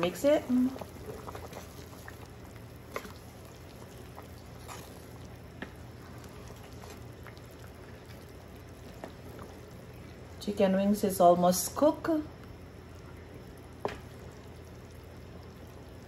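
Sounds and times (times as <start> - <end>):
wooden spoon stirring: 0.0 - 9.8
broth simmering in a pot: 0.0 - 16.0.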